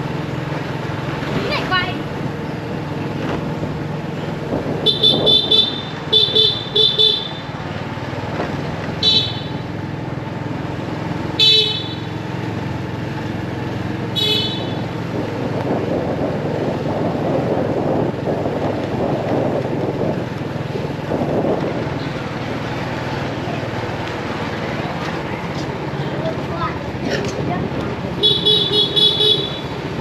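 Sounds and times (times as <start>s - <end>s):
road traffic noise: 0.0s - 30.0s
high-pitched vehicle horn toots: 4.8s - 7.5s, 9.0s - 9.6s, 11.4s - 12.1s, 14.1s - 14.9s, 28.2s - 29.8s.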